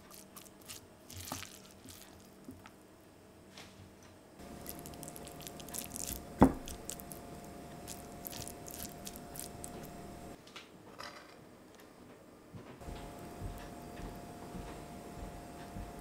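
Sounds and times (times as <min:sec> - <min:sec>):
sticky rice squishing: 0:00.0 - 0:02.8, 0:04.4 - 0:10.4.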